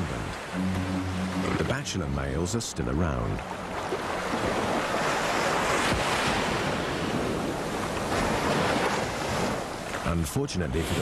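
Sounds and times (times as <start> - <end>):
waves breaking on a beach: 3.4 - 11.0.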